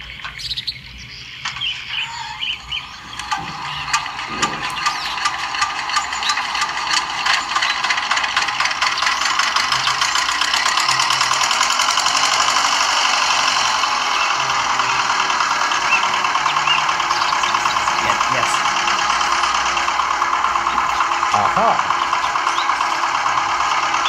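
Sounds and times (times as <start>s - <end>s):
model engine clattering: 0.0s - 24.0s.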